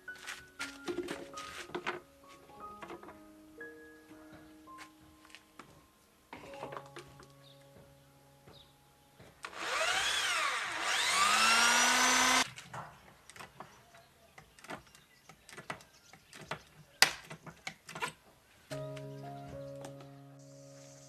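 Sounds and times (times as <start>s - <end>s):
electric drill whirring: 9.4s - 12.5s.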